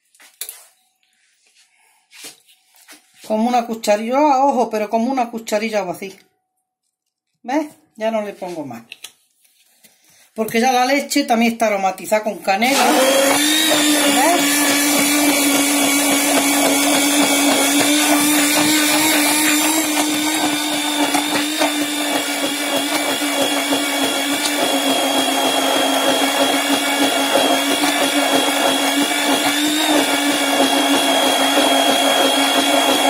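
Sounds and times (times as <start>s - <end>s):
electric hand blender whine: 12.6s - 33.0s.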